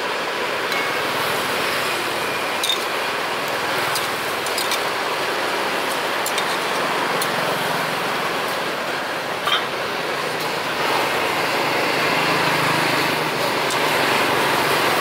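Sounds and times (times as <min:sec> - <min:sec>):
traffic hiss: 0:00.0 - 0:15.0.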